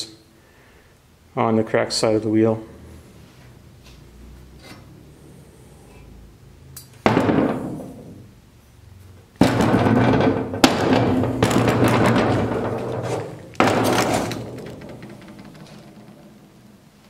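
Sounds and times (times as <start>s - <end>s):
small knocks: 9.4s - 16.7s.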